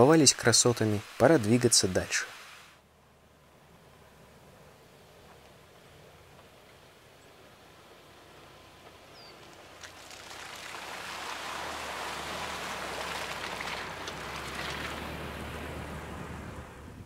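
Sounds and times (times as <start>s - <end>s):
tyres splashing through mud: 8.1s - 17.0s.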